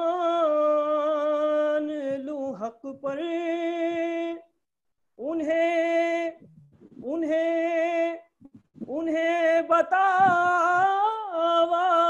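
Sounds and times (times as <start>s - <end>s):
man singing unaccompanied: 0.0s - 4.5s, 5.2s - 12.0s.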